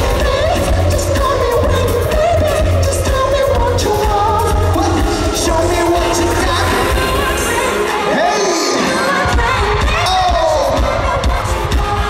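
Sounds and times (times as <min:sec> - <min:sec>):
heavy bass beat: 0:00.0 - 0:07.9
man singing pop song: 0:00.0 - 0:12.0.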